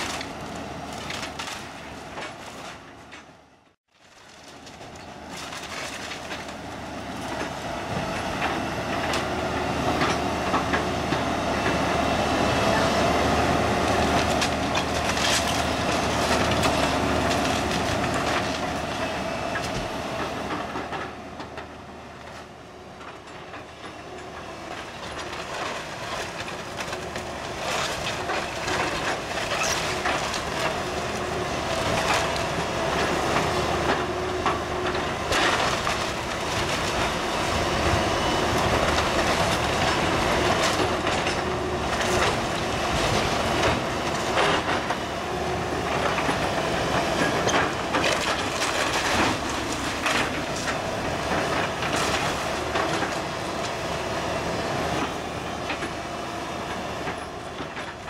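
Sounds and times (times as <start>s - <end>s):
timber cracking and crashing: 0.0s - 3.3s, 3.9s - 7.6s, 13.3s - 19.0s, 24.7s - 53.9s
excavator engine droning: 0.0s - 58.0s.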